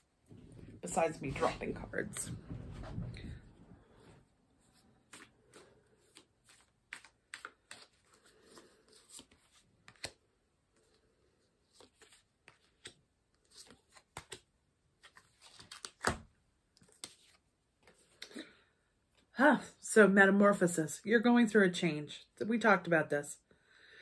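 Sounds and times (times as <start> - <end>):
cards being shuffled: 4.7 - 10.2, 10.8 - 18.4.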